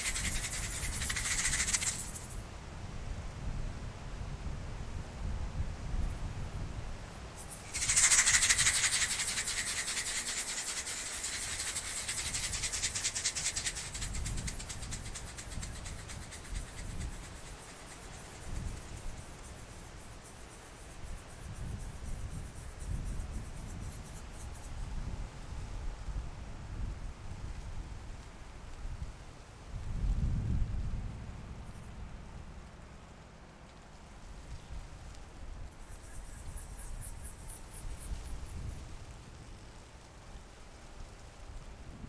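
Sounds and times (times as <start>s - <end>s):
rapid rattling flutter: 0.0s - 2.4s, 7.4s - 24.8s, 33.8s - 41.3s.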